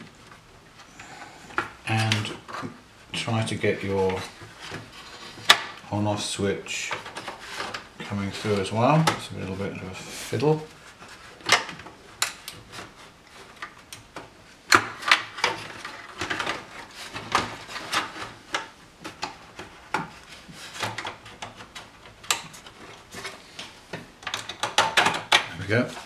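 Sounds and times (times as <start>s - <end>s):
plastic panel clicking and scraping: 11.4s - 26.0s.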